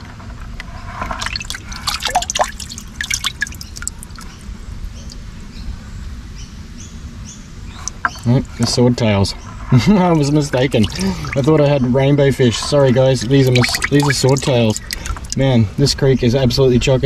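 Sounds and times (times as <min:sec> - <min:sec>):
hand splashing in water: 0:01.2 - 0:04.4, 0:10.6 - 0:11.7, 0:12.6 - 0:15.4
water dripping: 0:01.2 - 0:05.2, 0:10.2 - 0:15.5.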